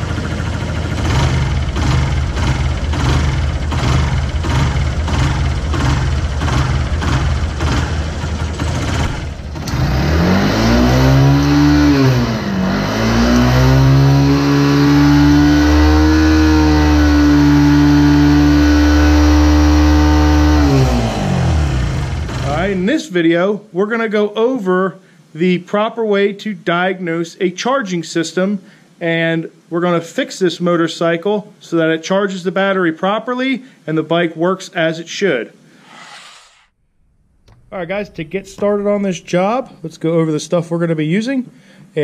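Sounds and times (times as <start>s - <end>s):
motorcycle engine idling and revving: 0.0s - 22.8s.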